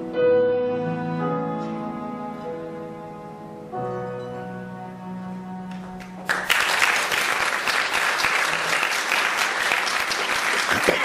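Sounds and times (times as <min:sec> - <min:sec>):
audience applause: 0:06.0 - 0:11.0.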